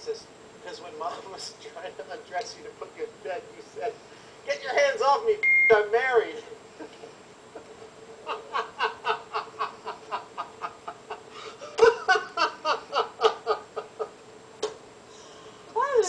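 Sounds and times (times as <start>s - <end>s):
people laughing: 6.8s - 14.2s.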